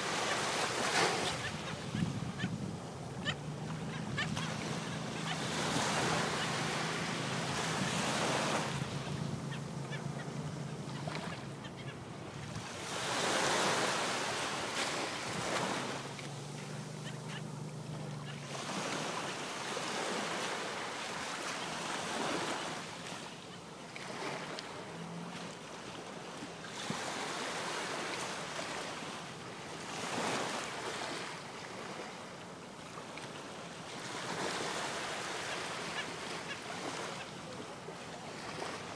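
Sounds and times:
surf washing onto a beach: 0:00.0 - 0:03.2.

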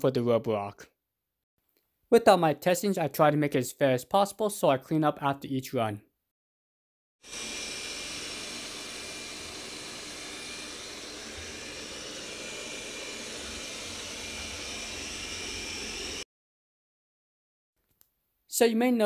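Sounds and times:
robot vacuum whirring with whine: 0:07.2 - 0:16.2.

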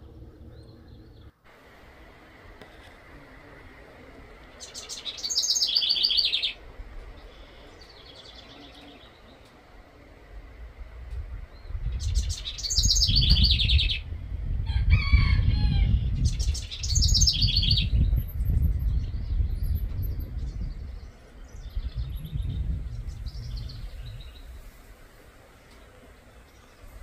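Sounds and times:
songbirds singing: 0:00.0 - 0:01.5, 0:03.3 - 0:27.0
low uneven rumble: 0:00.0 - 0:05.2, 0:06.2 - 0:27.0.

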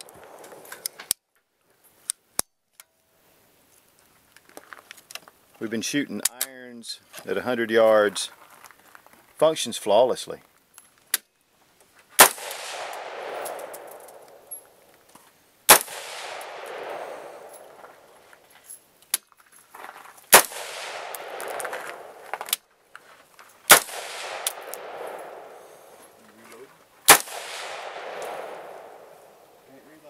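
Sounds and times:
rifle shots with echo: 0:12.2 - 0:14.6, 0:15.7 - 0:18.2, 0:20.3 - 0:22.5, 0:23.7 - 0:26.0, 0:27.1 - 0:29.5.

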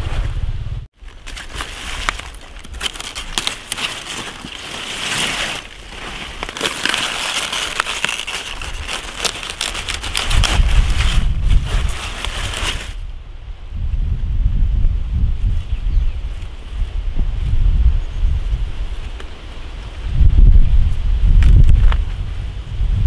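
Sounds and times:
wind rumbling on microphone: 0:00.0 - 0:03.2, 0:05.5 - 0:23.0
leafy greens rustling and snapping: 0:01.0 - 0:13.0.

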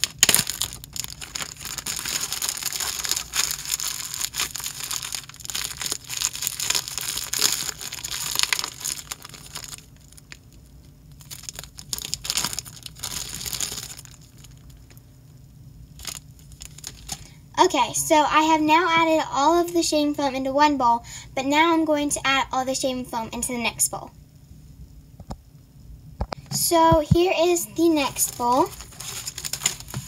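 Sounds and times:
plastic bag crinkling: 0:00.0 - 0:15.0, 0:16.0 - 0:17.4, 0:28.1 - 0:30.0.

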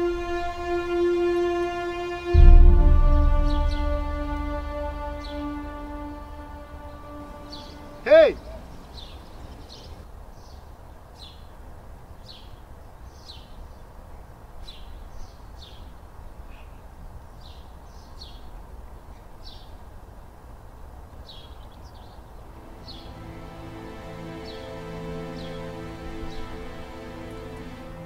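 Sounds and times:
low outdoor rumble: 0:02.3 - 0:08.8
small birds chirping: 0:06.6 - 0:20.4, 0:21.1 - 0:23.4.

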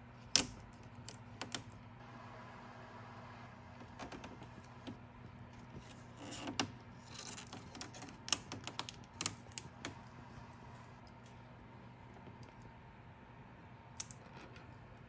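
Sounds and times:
small clicks taps and scrapes: 0:00.2 - 0:01.8, 0:03.8 - 0:10.1.

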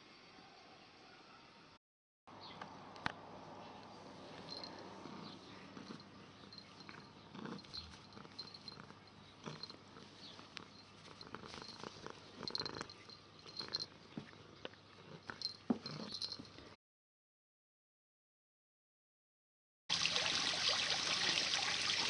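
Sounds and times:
cat purring: 0:04.2 - 0:16.8
soft rustles and taps of paws: 0:05.8 - 0:16.7.

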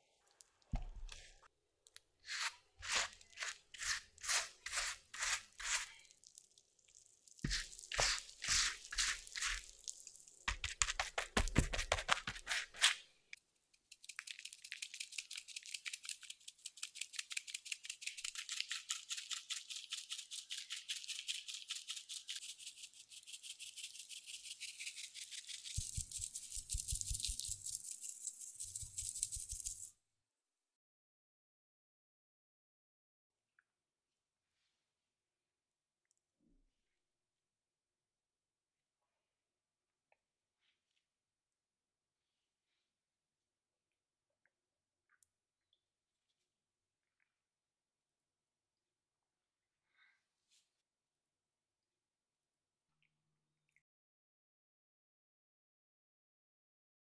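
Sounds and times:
pastry brush strokes: 0:02.2 - 0:06.1, 0:07.3 - 0:13.0, 0:13.8 - 0:29.9
sieve shaking sugar patter: 0:02.3 - 0:06.0, 0:07.4 - 0:13.0, 0:13.9 - 0:29.9.

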